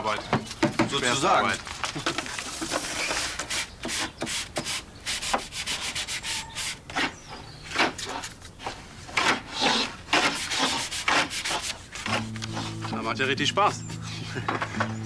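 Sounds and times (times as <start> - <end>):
sandpaper rubbing on wood: 2.7 - 7.2, 9.2 - 12.8.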